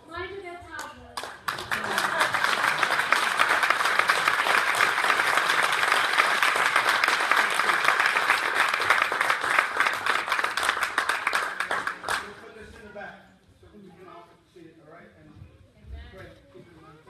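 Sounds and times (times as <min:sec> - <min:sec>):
crowd applauding: 0:01.2 - 0:12.6.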